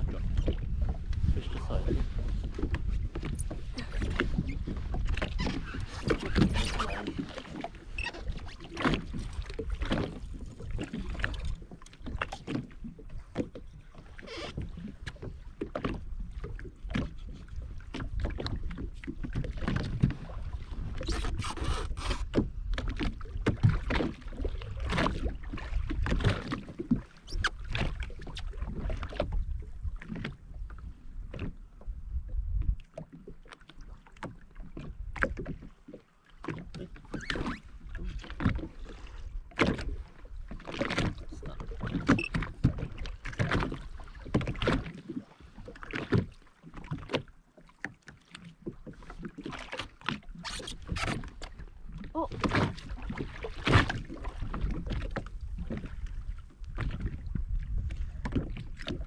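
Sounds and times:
wind buffeting microphone: 0.0 - 11.7, 53.8 - 59.0
jet ski engine rumble: 0.0 - 17.9
water splashing against hull: 0.0 - 59.0.

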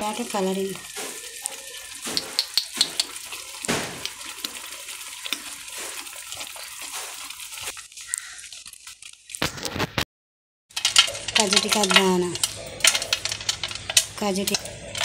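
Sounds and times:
spatula stirring sticky mixture: 0.0 - 9.0, 10.8 - 15.0
sharp clicks: 2.1 - 3.2.

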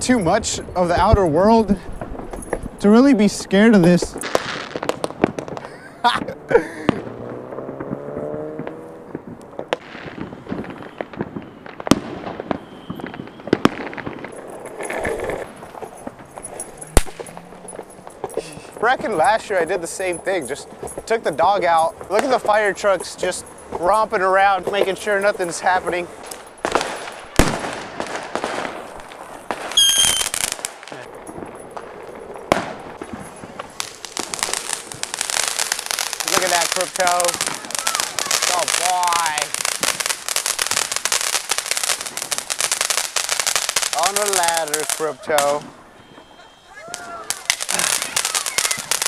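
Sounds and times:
distant fireworks popping and banging: 0.0 - 49.0
firework whistle: 10.0 - 15.4, 29.6 - 30.6, 33.3 - 39.5, 44.0 - 49.0.

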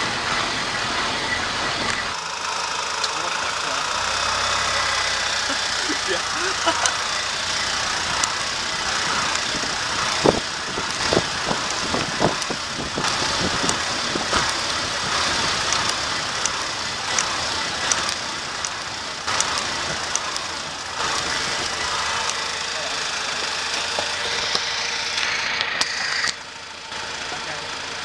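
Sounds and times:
car engine running: 0.0 - 28.0
sharp clicks and knocks: 9.2 - 22.4.

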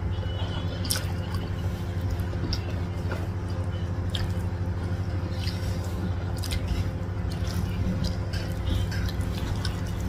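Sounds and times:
steady low hum: 0.0 - 10.0
wet squishy chewing: 0.5 - 10.0.

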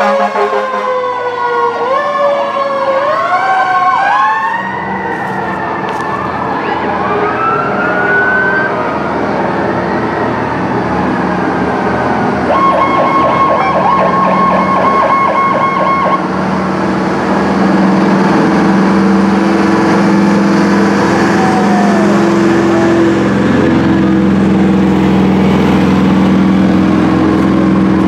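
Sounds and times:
sirens: 0.0 - 17.6, 18.2 - 27.2
vehicle engines running: 2.6 - 28.0
electronic siren pulsing rapidly: 12.5 - 16.2.

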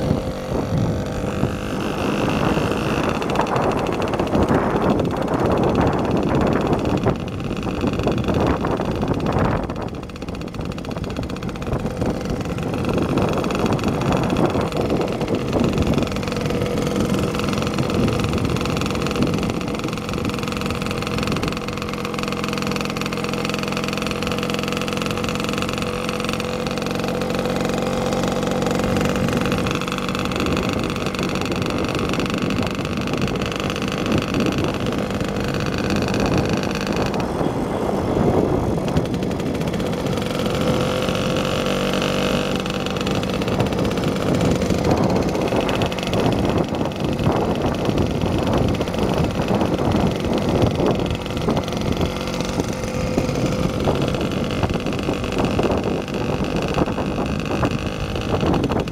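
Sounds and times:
engine running steadily: 0.0 - 58.9
rough microphone noise: 0.0 - 58.9.

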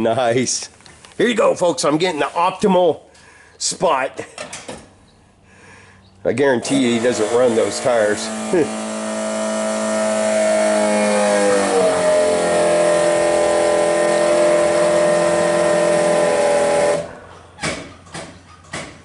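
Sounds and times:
motor running steadily: 6.6 - 17.3.

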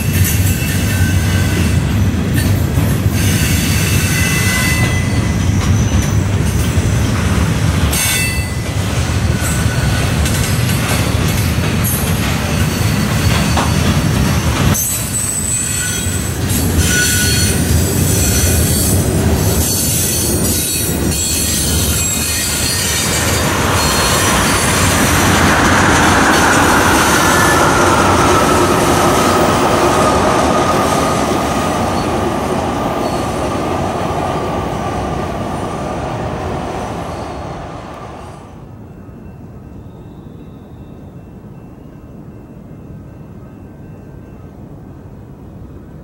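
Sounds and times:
train wheels clattering over rails: 0.0 - 35.2
high wheel squeal: 3.1 - 6.3, 11.8 - 32.2, 32.9 - 33.5.

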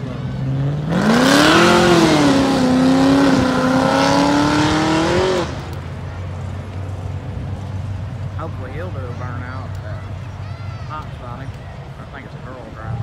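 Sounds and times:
car engine revving: 0.0 - 6.5.

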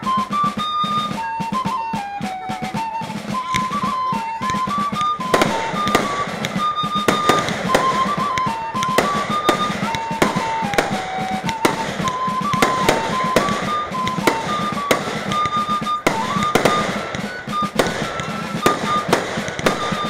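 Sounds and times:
fireworks bangs and crackles: 0.0 - 20.0
music with held notes: 0.0 - 20.0.

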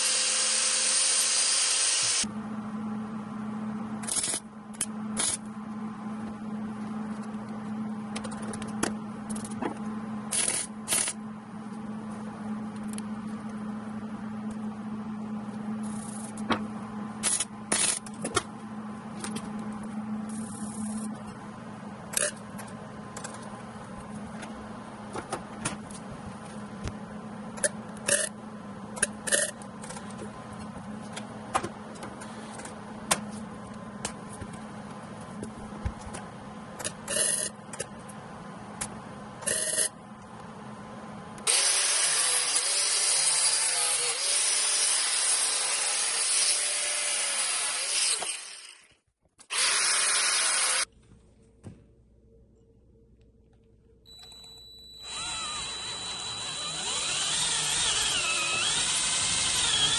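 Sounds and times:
angle grinder cutting pipe: 0.0 - 2.3, 41.5 - 48.8, 49.5 - 50.9, 55.0 - 59.9.

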